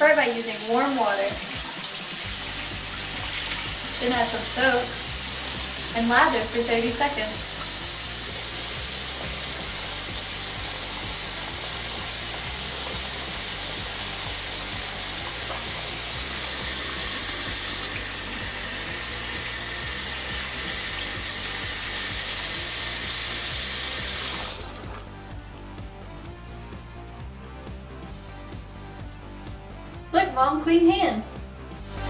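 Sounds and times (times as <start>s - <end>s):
faucet water running into sink: 0.0s - 25.1s
background music: 0.0s - 32.0s.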